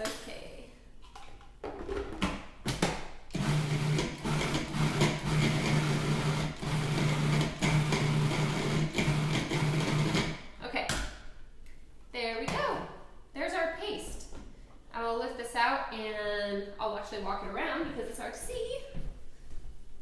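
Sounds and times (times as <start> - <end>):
food processor motor pulsing: 3.3 - 10.3.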